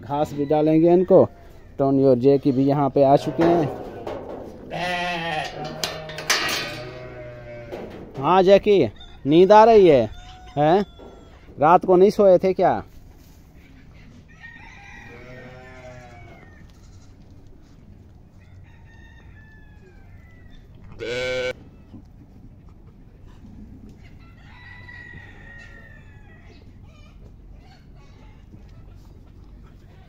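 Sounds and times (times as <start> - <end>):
roosters crowing: 0.0 - 12.4, 14.0 - 17.1, 18.3 - 21.6, 24.0 - 28.5
sheep bleating: 4.7 - 7.9, 15.1 - 17.1, 21.0 - 21.6.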